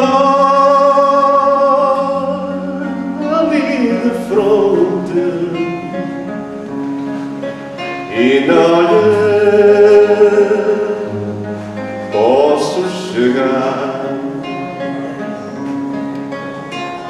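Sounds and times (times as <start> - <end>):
man singing: 0.0 - 6.3, 8.0 - 11.4, 12.0 - 15.3
nylon-string guitar: 0.0 - 17.0.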